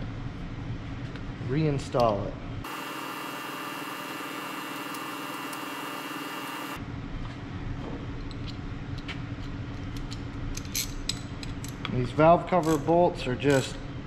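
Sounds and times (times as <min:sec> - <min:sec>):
machine hum: 0:02.6 - 0:06.9.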